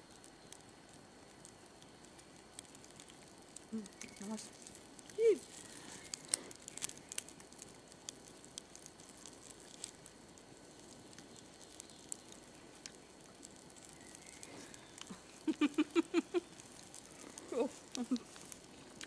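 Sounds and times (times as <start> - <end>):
campfire crackling: 0.0 - 19.0
woman giggling: 15.4 - 16.5, 17.5 - 18.3.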